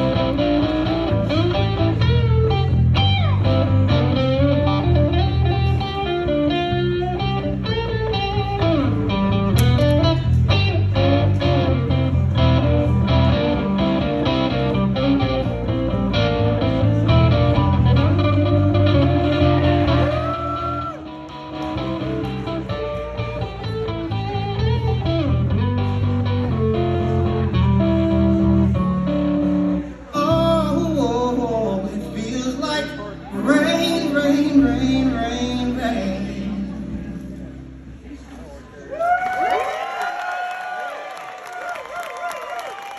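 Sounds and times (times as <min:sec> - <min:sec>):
electric guitar solo: 0:00.0 - 0:30.4
blues band playing: 0:00.0 - 0:38.4
man singing: 0:30.1 - 0:37.4.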